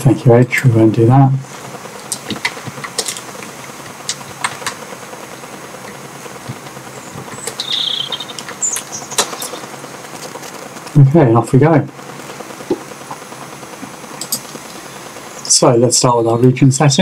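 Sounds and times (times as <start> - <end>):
low hiss: 0.0 - 17.0
short high chirping: 7.4 - 9.6.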